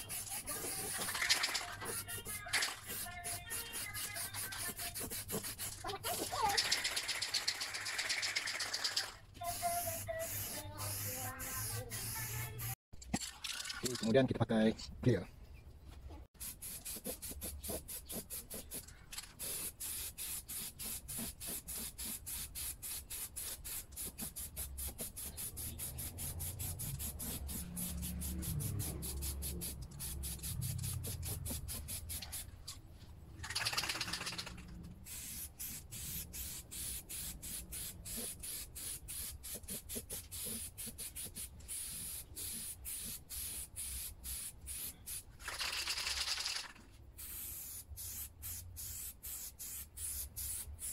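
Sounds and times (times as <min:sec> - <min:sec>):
aerosol spray can hissing: 0:00.0 - 0:12.8, 0:16.4 - 0:32.5, 0:33.5 - 0:50.9
fast regular ticking: 0:06.5 - 0:09.2, 0:33.4 - 0:34.6.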